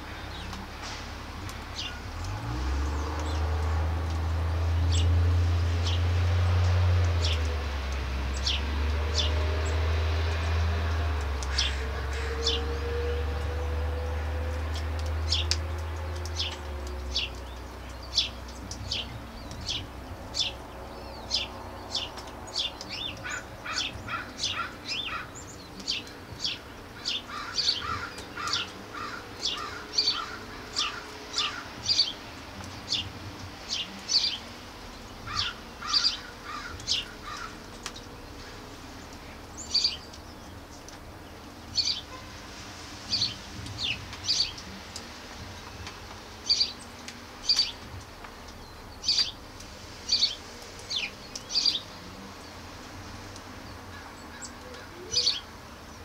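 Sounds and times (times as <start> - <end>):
birds chirping: 0.0 - 42.4, 43.0 - 56.0
lower bird chirping call: 35.3 - 38.6, 50.0 - 52.6, 53.9 - 55.5.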